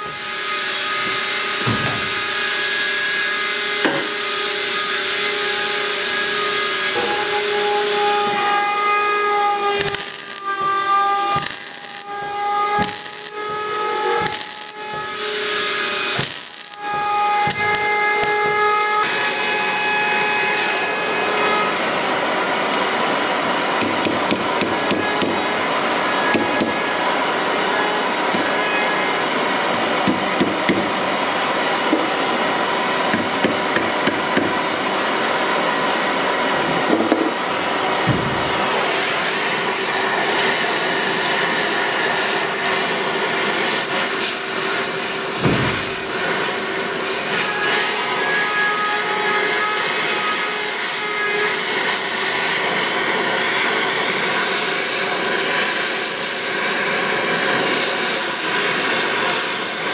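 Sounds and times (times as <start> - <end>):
welder arcing in bursts: 8.0 - 20.9, 23.1 - 35.9, 37.5 - 48.0, 51.5 - 59.9
gas torch flame hissing: 9.6 - 19.4, 23.2 - 35.4, 36.9 - 47.8.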